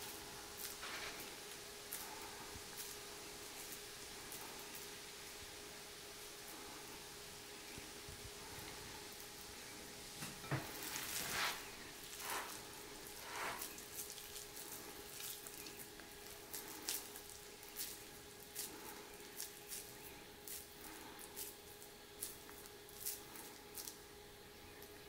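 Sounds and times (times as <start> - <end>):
faint steady hum: 0.0 - 25.0
wet squishes of meat mixture: 10.8 - 25.0.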